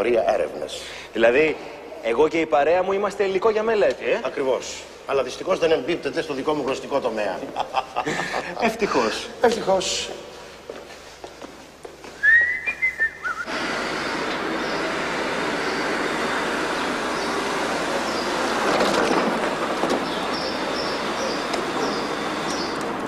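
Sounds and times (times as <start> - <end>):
street traffic: 10.6 - 23.0
short rising whistle: 12.2 - 14.8.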